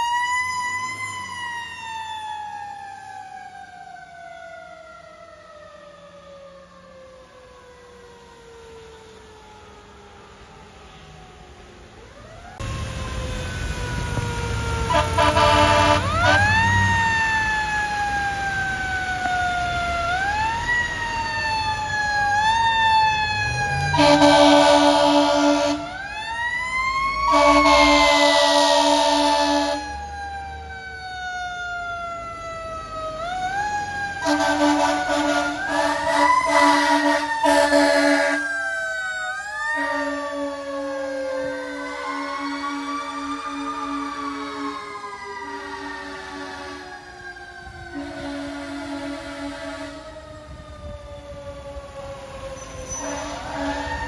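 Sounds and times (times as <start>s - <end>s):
fire engine siren wailing: 0.0s - 54.0s
air horn blasts: 14.9s - 16.7s, 23.9s - 26.0s, 27.3s - 29.8s, 34.2s - 38.4s, 39.8s - 40.5s, 45.6s - 47.0s, 47.9s - 50.1s, 52.8s - 54.0s.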